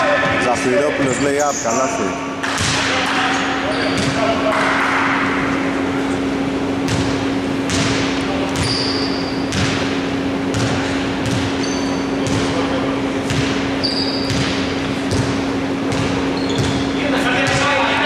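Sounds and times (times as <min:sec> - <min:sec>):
steady low hum: 0:00.0 - 0:18.0
sneakers squeaking on floor: 0:01.0 - 0:02.0, 0:03.6 - 0:04.3, 0:06.8 - 0:17.7
basketball bouncing on hardwood: 0:10.5 - 0:11.6, 0:14.3 - 0:16.8.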